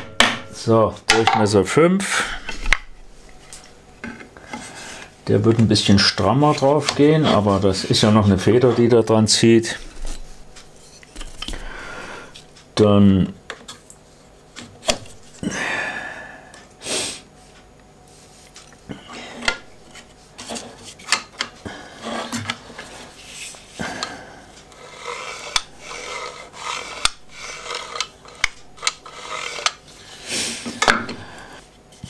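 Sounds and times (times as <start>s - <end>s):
rubbing and rustling: 21.9s - 23.8s.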